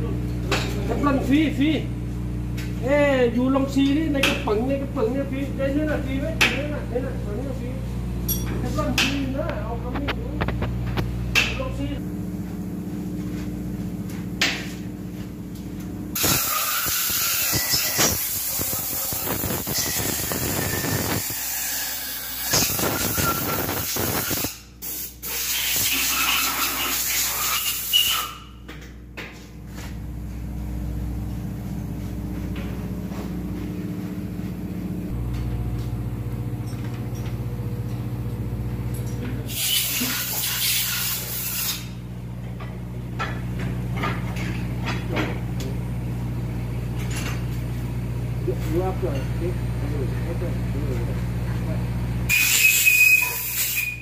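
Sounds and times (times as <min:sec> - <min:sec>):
low hum of machinery: 0:00.0 - 0:54.0.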